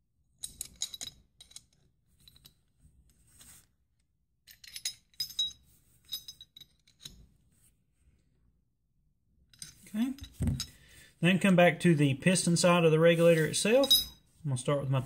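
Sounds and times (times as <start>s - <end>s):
metal wrench clinking on metal: 4.5s - 7.2s, 13.7s - 14.2s.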